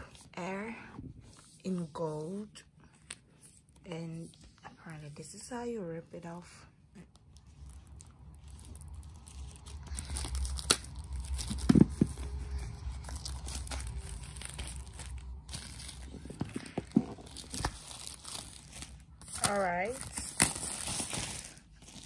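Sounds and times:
plastic shrink-wrap tearing: 0:07.2 - 0:16.3, 0:17.2 - 0:22.0.

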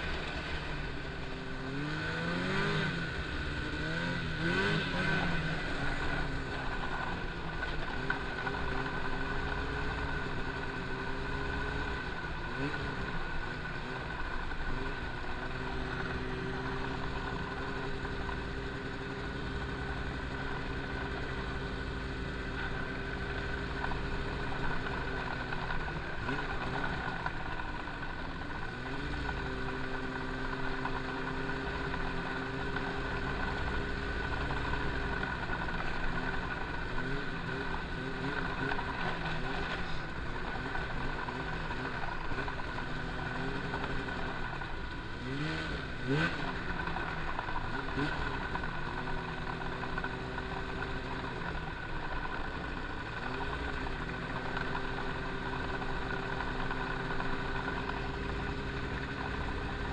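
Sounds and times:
snowmobile engine running: 0:00.0 - 0:59.9
wind: 0:00.0 - 0:59.9.

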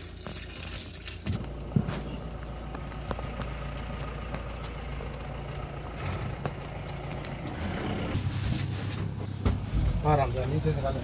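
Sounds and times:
engine idling: 0:01.3 - 0:08.4.

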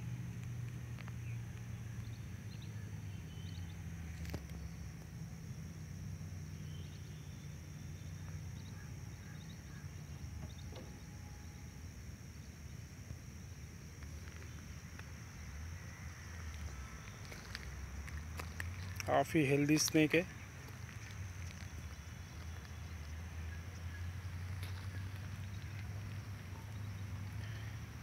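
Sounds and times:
high-pitched whine: 0:00.0 - 0:28.0
low hum: 0:00.0 - 0:28.0
faint chirps: 0:06.4 - 0:28.0.

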